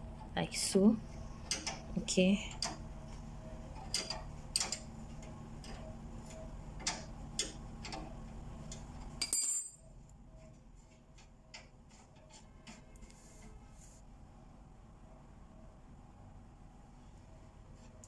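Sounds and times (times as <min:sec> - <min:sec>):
spanner clicking on a nut: 0:03.8 - 0:04.9.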